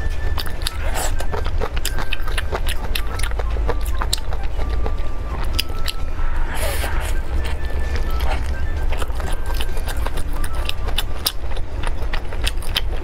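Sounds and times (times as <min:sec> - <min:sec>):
low steady hum: 0:00.0 - 0:13.0
wet chewing and smacking: 0:00.0 - 0:13.0.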